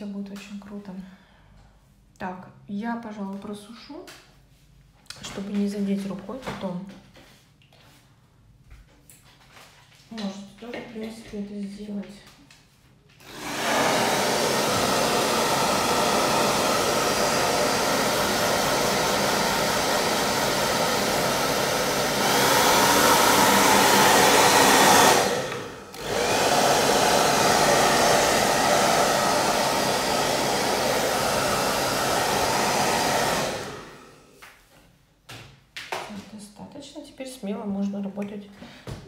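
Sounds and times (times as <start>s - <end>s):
hair dryer blowing: 13.2s - 34.4s.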